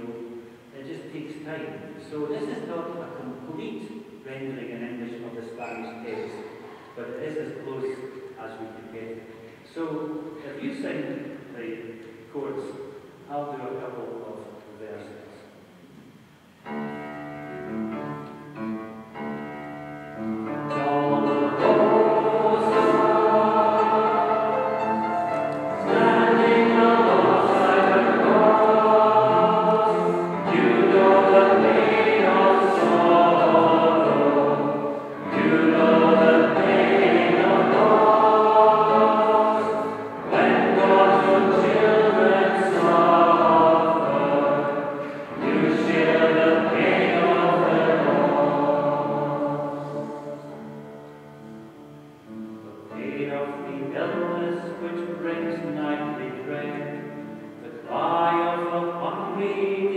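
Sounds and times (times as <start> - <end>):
congregation singing a hymn: 0.0 - 15.3, 16.7 - 59.9.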